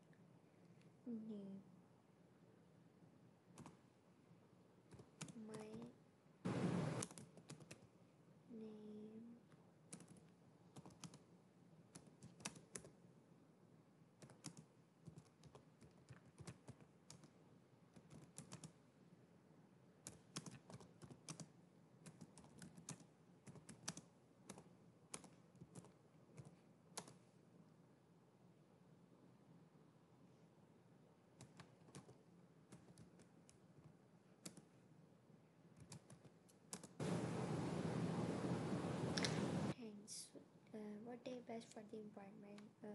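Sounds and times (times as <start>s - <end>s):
computer keyboard typing: 3.5s - 3.8s, 4.9s - 5.9s, 6.9s - 7.9s, 9.9s - 11.3s, 11.9s - 13.0s, 14.2s - 18.8s, 20.0s - 27.2s, 31.4s - 34.7s, 35.8s - 37.0s.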